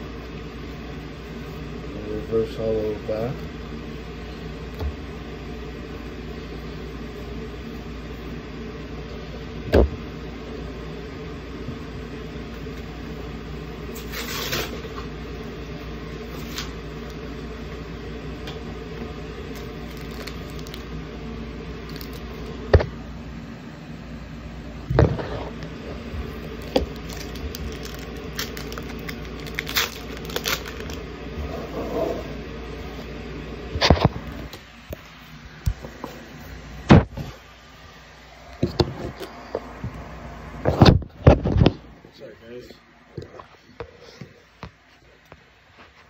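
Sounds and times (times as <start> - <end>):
steady background hum: 0.0 - 46.0
foil packs crinkling: 14.0 - 14.8, 19.5 - 20.9, 21.8 - 22.4, 26.2 - 31.1.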